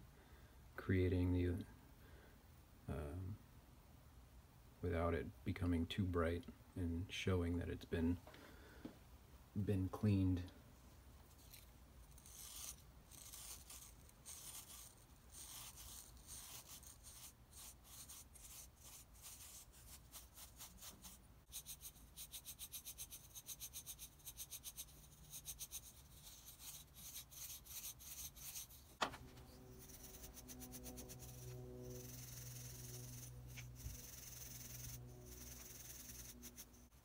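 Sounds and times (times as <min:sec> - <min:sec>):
wire brush scrubbing metal: 0:11.4 - 0:37.0.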